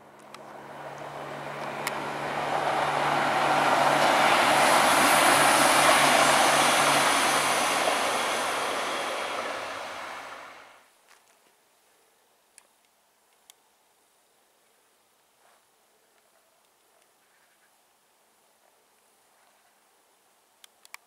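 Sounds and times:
diesel railbus passing: 0.0s - 10.8s.

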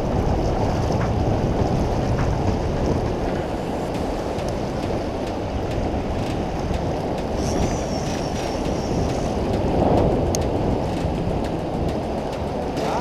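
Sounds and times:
river current rushing: 7.3s - 9.9s.

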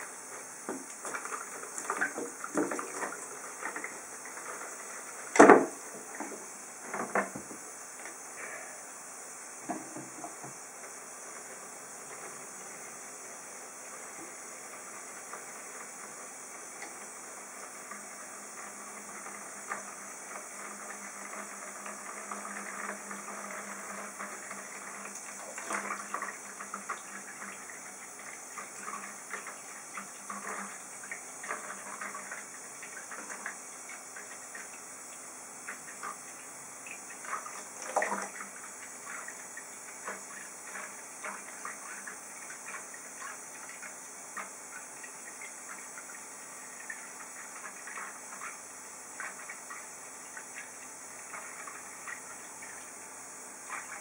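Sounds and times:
tap running into tub: 0.0s - 8.2s, 9.6s - 13.0s, 13.8s - 54.0s
water splashing: 37.1s - 44.5s.

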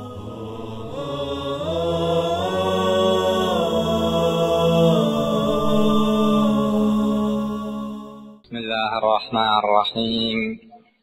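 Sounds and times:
choir-like chanted chords: 0.0s - 8.5s.

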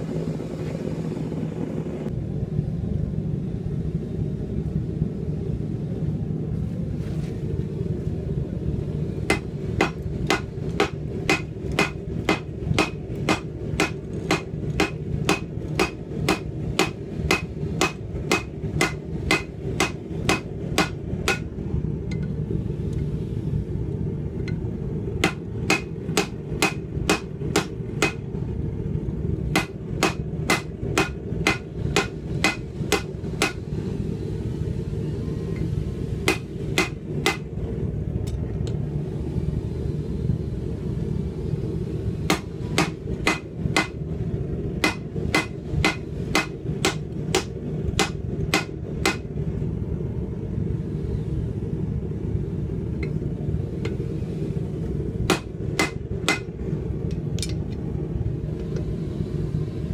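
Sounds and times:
steady low rumble: 0.0s - 59.9s
hammer striking steel on anvil: 9.3s - 21.5s, 25.2s - 28.3s, 29.5s - 33.6s, 36.3s - 37.5s, 42.3s - 44.0s, 44.8s - 49.3s, 55.3s - 56.5s.

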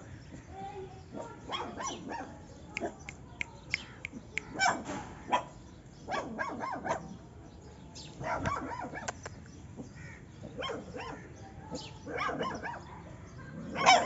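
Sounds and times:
puppies yapping: 13.5s - 14.0s.

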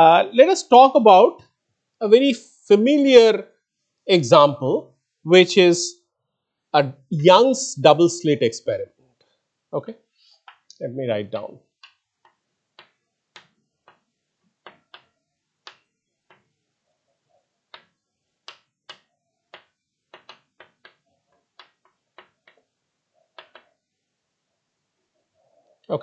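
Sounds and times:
chalk tapping on blackboard: 19.6s - 21.0s.

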